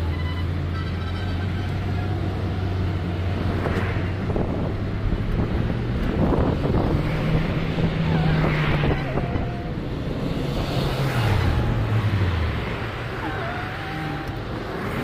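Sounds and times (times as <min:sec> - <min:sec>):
tyre and engine rush: 0:00.0 - 0:15.0
wind on microphone: 0:03.3 - 0:12.3.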